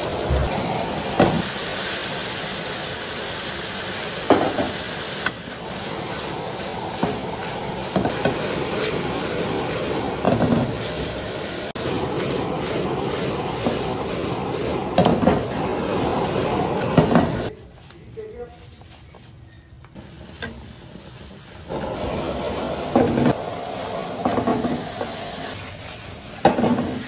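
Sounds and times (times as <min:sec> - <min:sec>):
fish sizzling in a wok: 0:00.0 - 0:17.5, 0:20.0 - 0:27.0
food shuffling in tossed wok: 0:05.7 - 0:27.0.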